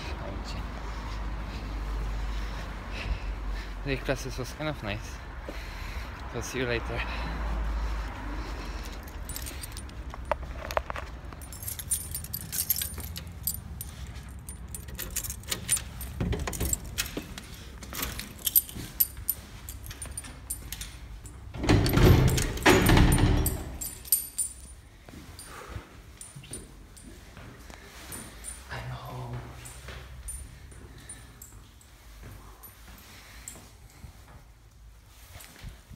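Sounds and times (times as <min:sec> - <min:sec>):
keys jangling and clicking: 0:08.0 - 0:28.8, 0:29.5 - 0:34.1
phone rustling in a pocket: 0:09.0 - 0:16.2.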